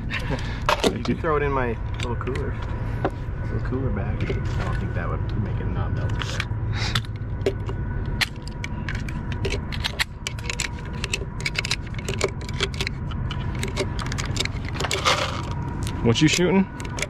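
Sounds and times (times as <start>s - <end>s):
low rumble: 0.0s - 17.0s
metallic clicks and rattles: 6.1s - 17.0s.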